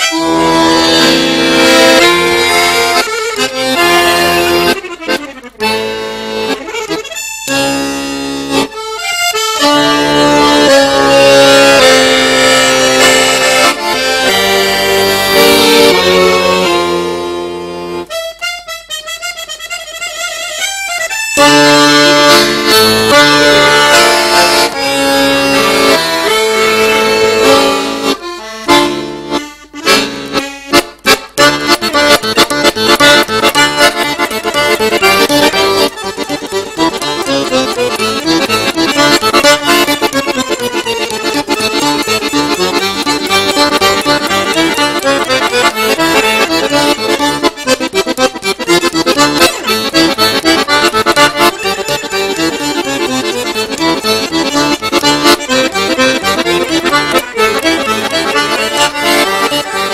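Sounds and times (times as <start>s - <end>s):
solo accordion playing: 0.0s - 59.9s.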